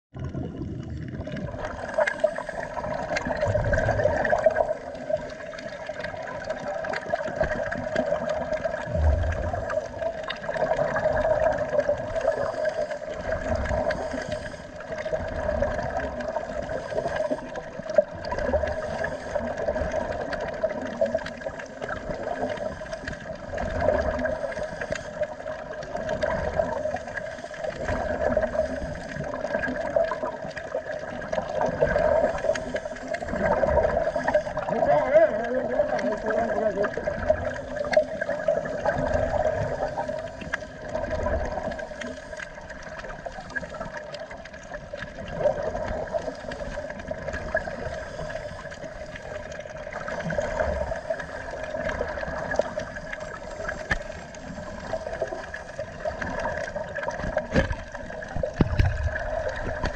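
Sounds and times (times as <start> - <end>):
underwater exhaled bubbles gurgling: 0.1 - 59.9
steady hum: 8.8 - 10.2.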